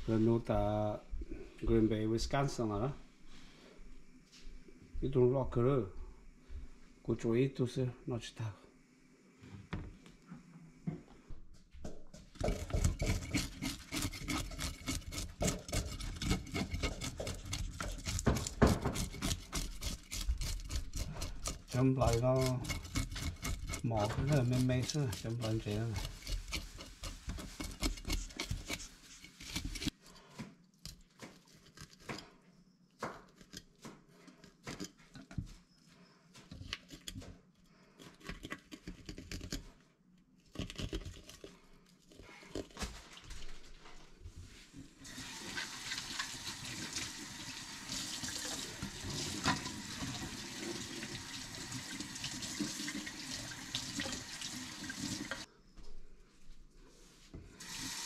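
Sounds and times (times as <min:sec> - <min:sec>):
knife scraping fish scales: 0:12.4 - 0:30.2, 0:36.4 - 0:37.3, 0:37.9 - 0:39.7
tap water running into sink: 0:45.1 - 0:55.5.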